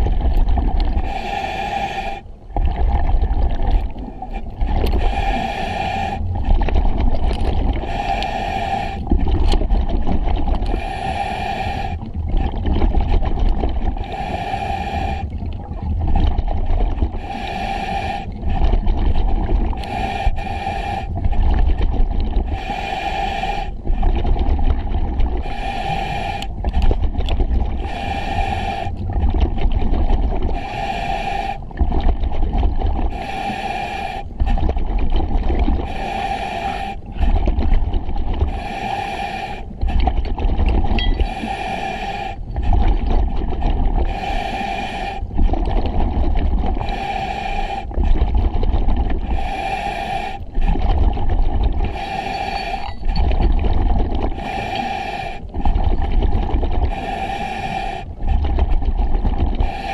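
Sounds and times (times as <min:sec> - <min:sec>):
exhaled bubbles rumbling: 0:00.0 - 0:22.8, 0:23.6 - 0:33.4, 0:34.2 - 0:36.2, 0:36.8 - 0:38.6, 0:39.6 - 0:59.9
hissing regulator inhale: 0:01.0 - 0:02.3, 0:04.2 - 0:06.5, 0:07.7 - 0:09.1, 0:10.6 - 0:12.1, 0:13.9 - 0:15.4, 0:17.2 - 0:18.9, 0:19.7 - 0:21.5, 0:22.4 - 0:24.1, 0:25.4 - 0:26.8, 0:27.8 - 0:29.2, 0:30.5 - 0:31.8, 0:33.1 - 0:34.6, 0:35.8 - 0:37.4, 0:38.4 - 0:40.0, 0:41.0 - 0:42.8, 0:44.0 - 0:45.4, 0:46.7 - 0:48.0, 0:49.2 - 0:50.8, 0:51.8 - 0:53.3, 0:54.3 - 0:55.8, 0:56.9 - 0:58.4, 0:59.6 - 0:59.9.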